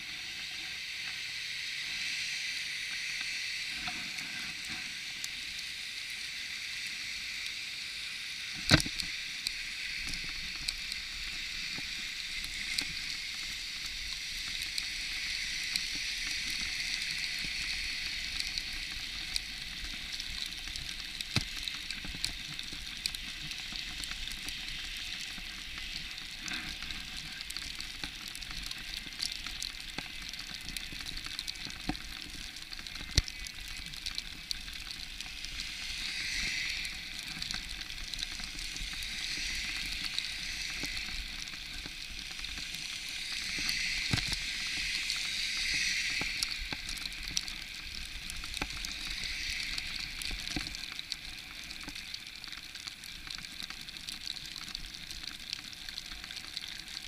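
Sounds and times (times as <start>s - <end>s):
steady hiss: 0.0s - 57.0s.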